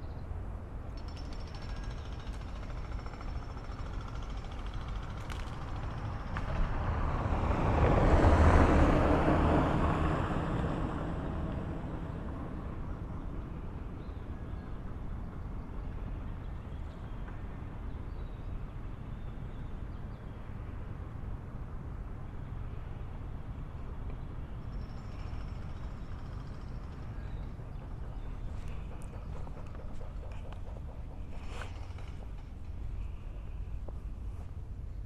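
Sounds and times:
motor vehicle passing by: 1.5s - 15.0s, 22.2s - 35.0s
steady low rumble: 20.9s - 35.0s.

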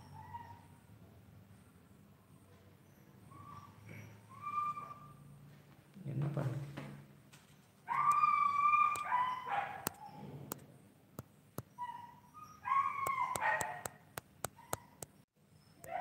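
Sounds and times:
dog yelping: 0.0s - 0.8s, 2.8s - 5.3s, 7.8s - 10.3s, 11.6s - 16.0s
sharp clicks: 9.8s - 10.6s, 13.0s - 15.2s.

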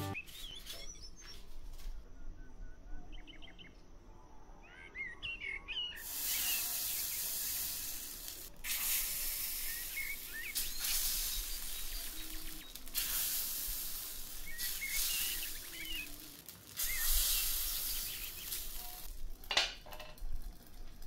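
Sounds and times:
birds chirping: 0.0s - 19.1s
batter sizzling in hot oil: 6.0s - 21.0s.

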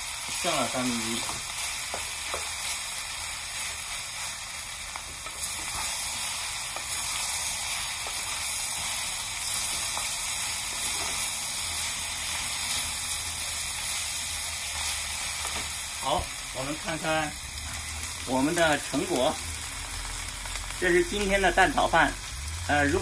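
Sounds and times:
fried rice sizzling in a pan: 0.0s - 23.0s.

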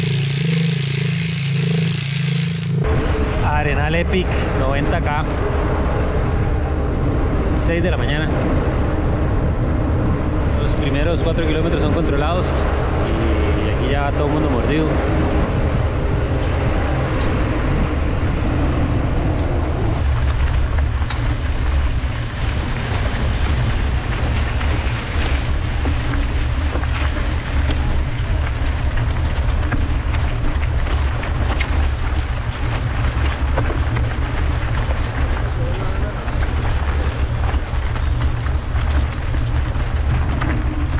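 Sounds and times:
bike rattling clicks: 0.0s - 2.8s
rolling tyre noise: 0.0s - 40.9s.

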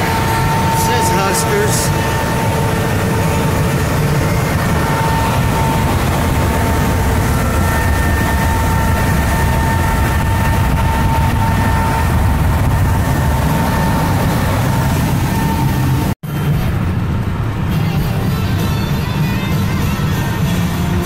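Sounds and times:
car road and engine noise: 0.0s - 21.0s
thin steady whine: 0.0s - 21.0s.

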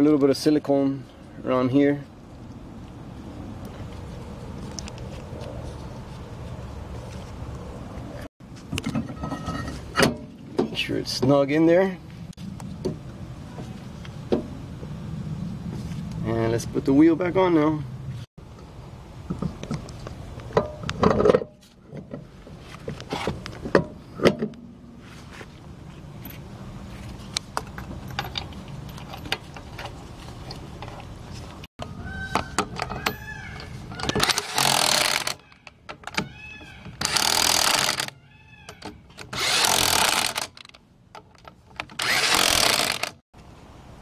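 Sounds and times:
wheel clanks and knocks: 8.7s - 11.4s, 20.5s - 23.0s
impact wrench bursts: 34.2s - 35.4s, 37.0s - 38.2s, 39.3s - 40.6s, 42.0s - 43.2s.

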